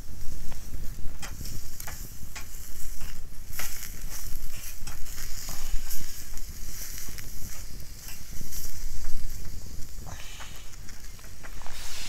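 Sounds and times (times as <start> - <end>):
wind rumble on microphone: 0.0 - 12.0
wood fire crackling: 0.0 - 12.0
steak sizzling: 0.8 - 12.0.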